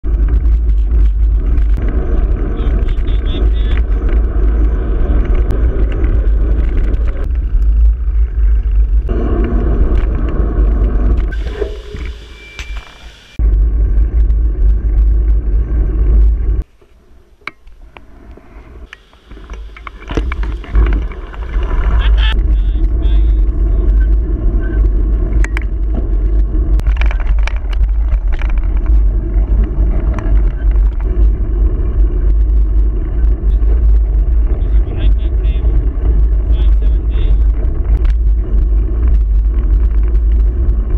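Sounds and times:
wind buffeting microphone: 0.0s - 12.2s, 18.4s - 40.9s
road noise: 0.0s - 40.9s
bicycle clicks and rattles: 0.1s - 9.1s, 18.8s - 23.2s, 24.1s - 34.8s, 35.4s - 40.9s.

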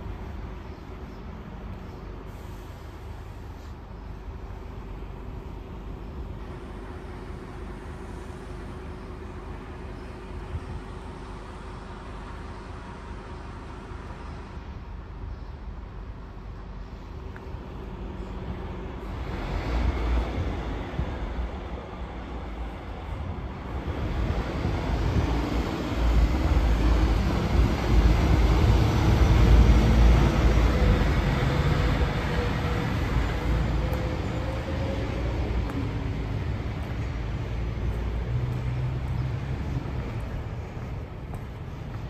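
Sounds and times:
vehicle passing rumble: 23.5s - 42.0s.

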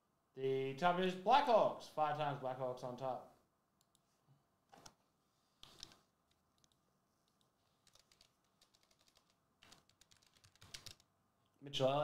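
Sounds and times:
computer keyboard typing: 5.6s - 11.1s.

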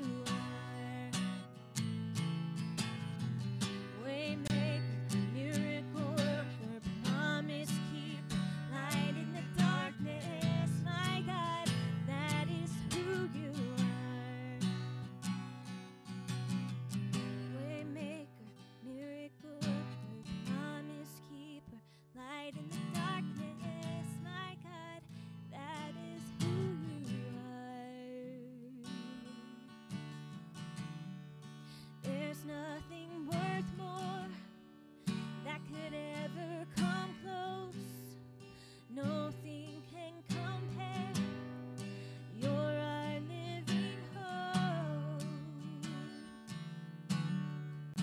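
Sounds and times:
person singing: 0.0s - 1.2s, 3.9s - 14.6s
acoustic guitar strumming: 0.0s - 21.6s, 22.4s - 48.0s.

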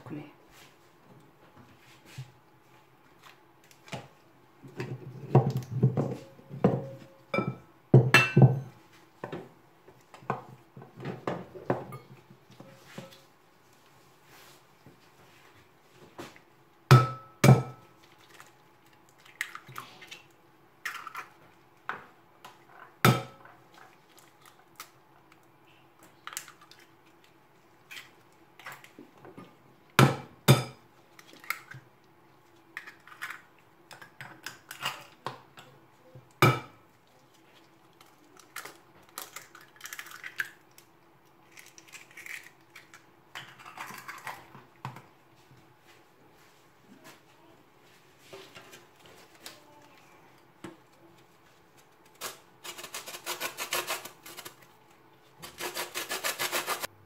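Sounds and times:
eggs cracking on glass bowl: 38.4s - 44.4s.

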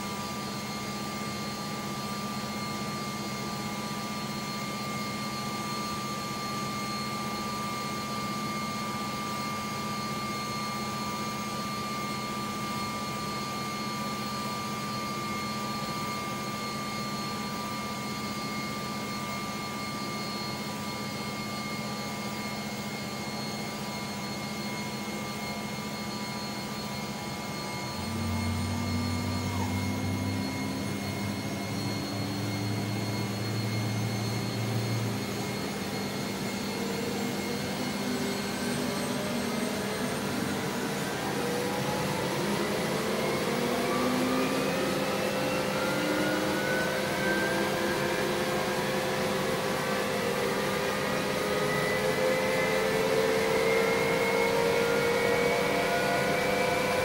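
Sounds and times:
helicopter rotor drone: 0.0s - 57.0s
turbine engines whining: 0.0s - 57.0s
low tone: 26.6s - 35.9s
slowly rising tone: 27.1s - 35.3s.

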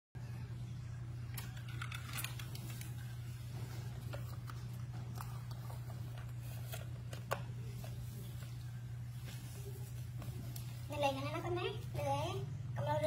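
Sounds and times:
steady low hum: 0.2s - 13.0s
cloth rustling: 2.4s - 11.1s.

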